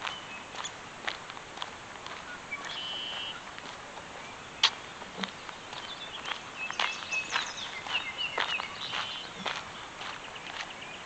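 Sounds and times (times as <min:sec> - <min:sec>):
birds chirping: 0:00.0 - 0:00.9, 0:02.0 - 0:11.0.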